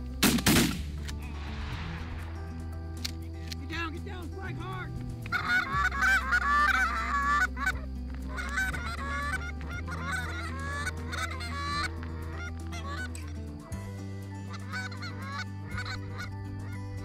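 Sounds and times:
geese honking and cackling: 0:05.2 - 0:17.0.

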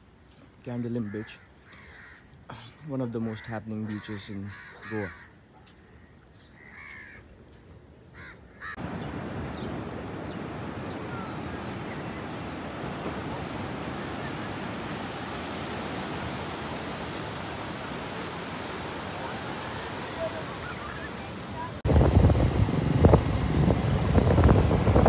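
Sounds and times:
crow cawing: 0:01.1 - 0:02.4, 0:03.3 - 0:06.0, 0:06.6 - 0:07.2, 0:08.1 - 0:08.8
sea surf breaking on beach: 0:08.8 - 0:25.0.

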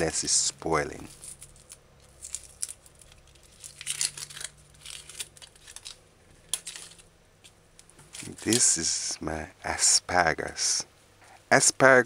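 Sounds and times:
onion skin crackling and tearing: 0:01.0 - 0:08.8.

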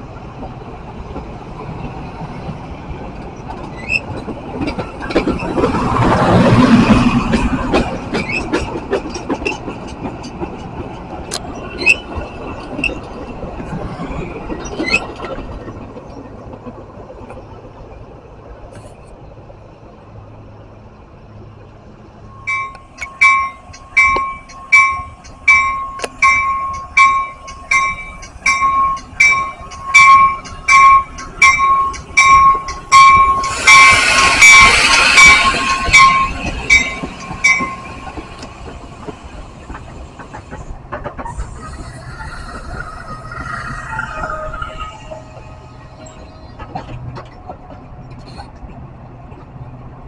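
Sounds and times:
train rumble and wheel clicks: 0:00.0 - 0:50.0
crossing warning bell dinging: 0:22.2 - 0:40.3
train wheels hissing: 0:22.2 - 0:47.3.

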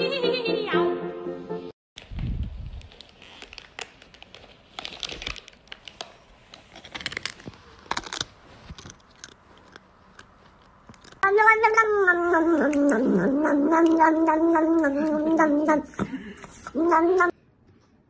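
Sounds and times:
plastic bag crinkling: 0:02.0 - 0:09.3.

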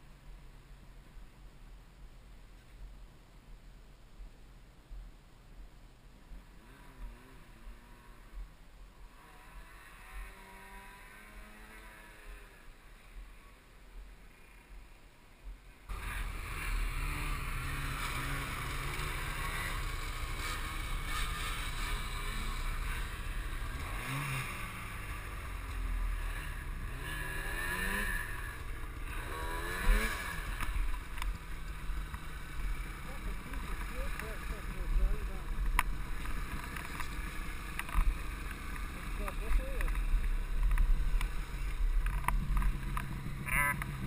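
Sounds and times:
snowmobile engine revving: 0:06.4 - 0:08.4, 0:09.0 - 0:13.6, 0:15.9 - 0:44.0
snowmobile engines running: 0:06.4 - 0:15.0, 0:15.6 - 0:44.0.

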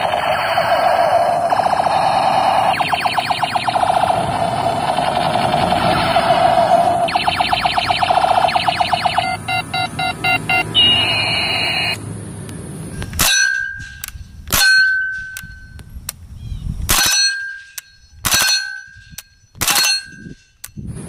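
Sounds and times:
falling electronic toy-gun tone: 0:00.0 - 0:09.9
high metallic ringing ping: 0:13.2 - 0:15.8, 0:17.0 - 0:20.6.

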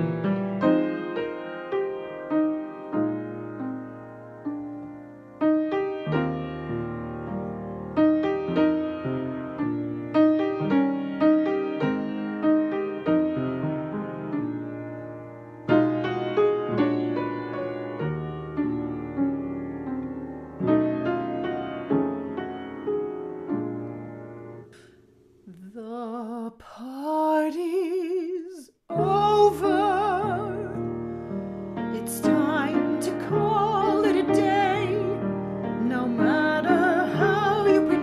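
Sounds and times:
piano chords: 0:00.0 - 0:25.4, 0:28.9 - 0:38.0
woman singing operatically: 0:25.5 - 0:30.8, 0:31.9 - 0:35.2, 0:35.8 - 0:38.0.

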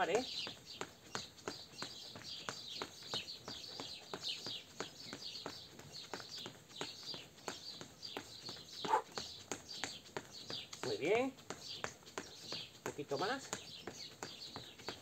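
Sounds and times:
birds chirping: 0:00.0 - 0:15.0
running footsteps on stone: 0:00.0 - 0:15.0.

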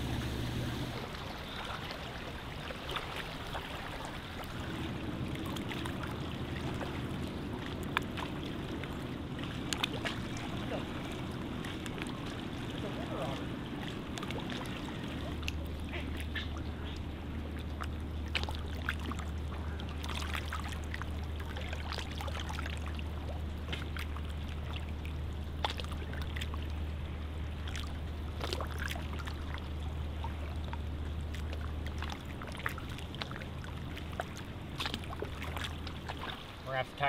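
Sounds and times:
steady low rumble: 0:00.0 - 0:01.3, 0:04.2 - 0:37.0
water lapping among rocks: 0:00.8 - 0:37.0
small clicks and splashes: 0:05.3 - 0:23.0, 0:23.6 - 0:24.9, 0:25.6 - 0:26.8, 0:27.6 - 0:36.6.

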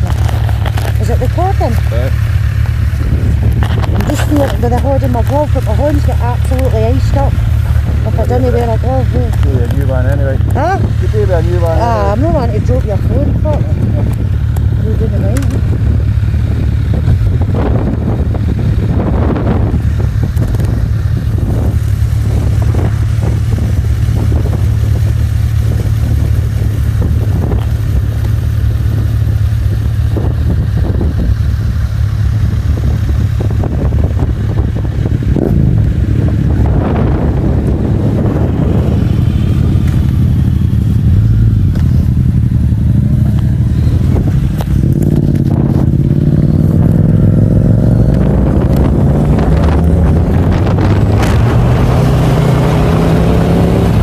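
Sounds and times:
motorcycle engine running: 0:00.0 - 0:54.0
wind buffeting microphone: 0:00.0 - 0:54.0.

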